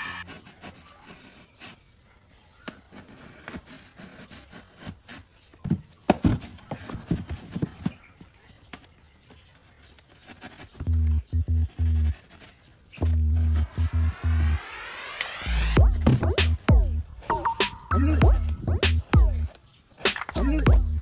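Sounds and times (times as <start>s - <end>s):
knife cutting foam: 2.6s - 7.9s.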